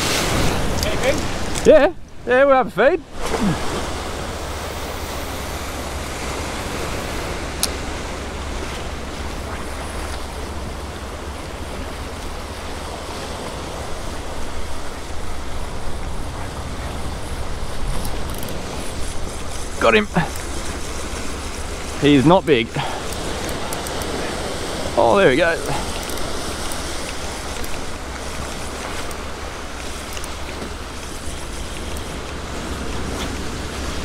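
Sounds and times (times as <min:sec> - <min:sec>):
surf washing over rocks: 0:00.0 - 0:34.0
wind on microphone: 0:03.0 - 0:34.0.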